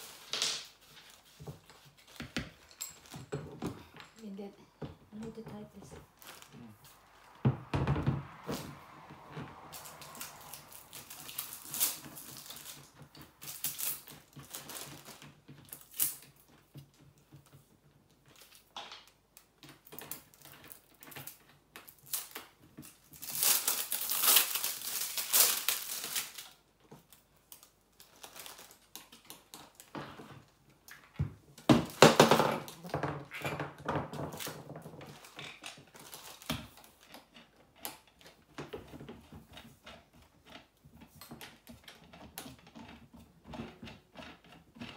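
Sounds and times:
plastic packaging crinkling: 0.0 - 3.2, 6.0 - 7.4, 9.7 - 16.4, 19.9 - 30.3, 34.1 - 37.2.

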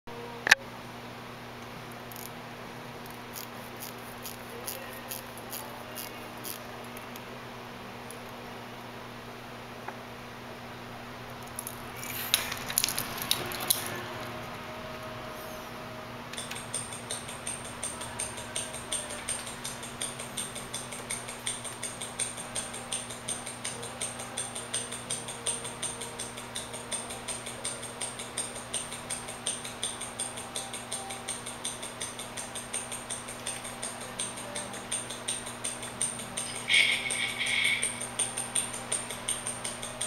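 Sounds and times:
watch ticking: 3.3 - 6.6, 16.4 - 40.0.

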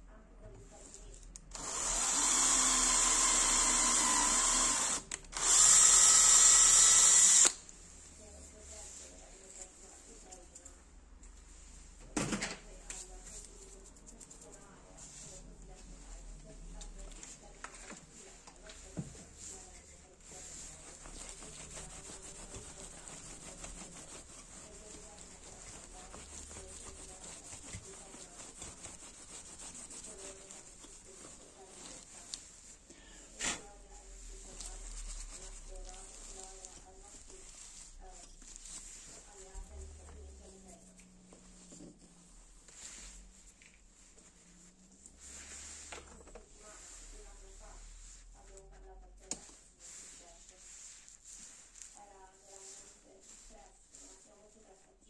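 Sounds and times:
electric drill boring into metal: 1.6 - 7.6
cloth rubbing on metal: 7.8 - 10.8, 12.8 - 55.0.

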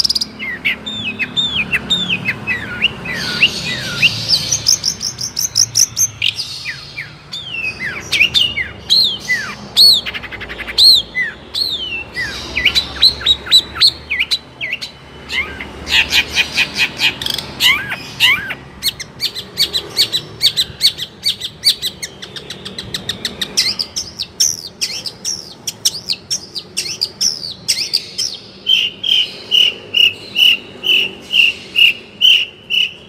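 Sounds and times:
shrike singing: 0.0 - 33.0.

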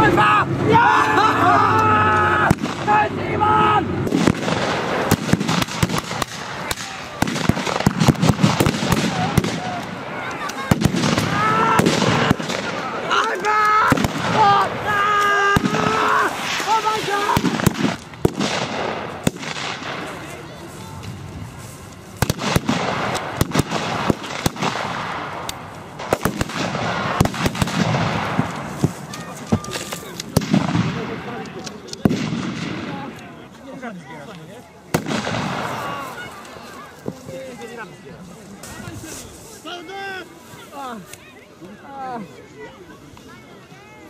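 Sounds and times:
blank gunshots: 4.0 - 13.2, 15.5 - 20.2, 22.2 - 29.0, 29.7 - 31.4, 32.0 - 33.1, 34.9 - 36.0.

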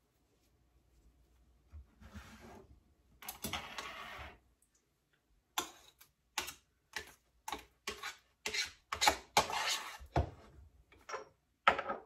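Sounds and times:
metal spoon scraping saucepan: 7.8 - 10.1.

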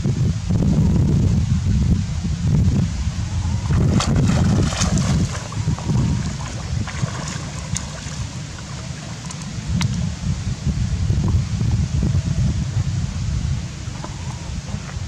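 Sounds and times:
wind rumbling on microphone: 0.0 - 15.0
water sloshing and splashing: 3.6 - 10.0.

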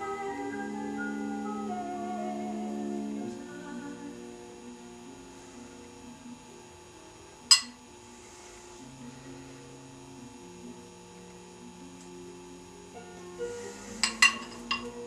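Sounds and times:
sharp clink: 7.5 - 7.8.

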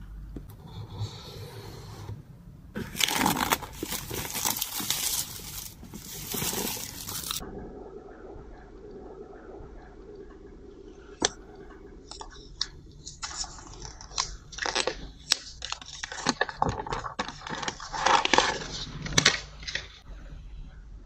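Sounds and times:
paper crinkling and tearing: 2.8 - 7.4, 13.2 - 20.0.

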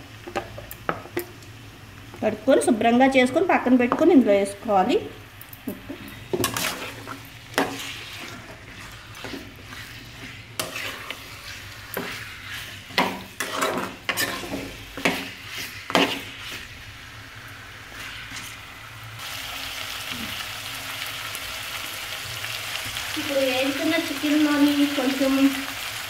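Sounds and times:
faint sizzle: 0.0 - 26.0
metal spatula scraping a pan: 5.8 - 16.9, 17.8 - 18.7.

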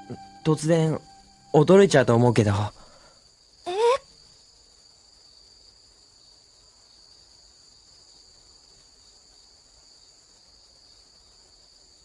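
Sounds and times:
crickets chirping: 0.0 - 12.0
girl saying eh: 3.7 - 4.1.

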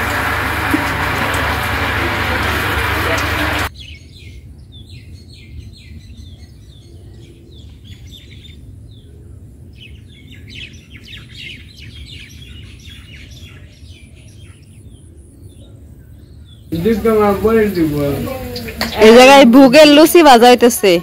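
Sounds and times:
small birds chirping: 9.8 - 19.9.

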